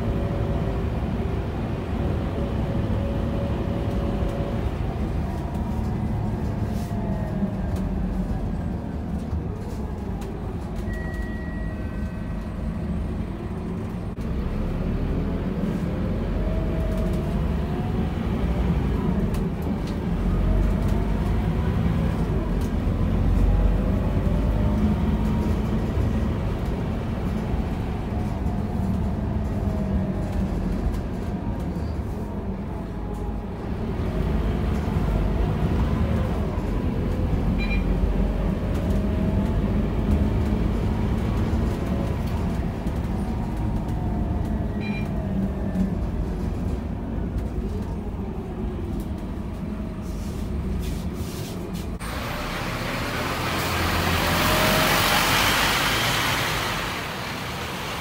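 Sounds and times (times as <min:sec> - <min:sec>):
bus engine rumbling: 0:00.0 - 0:58.0.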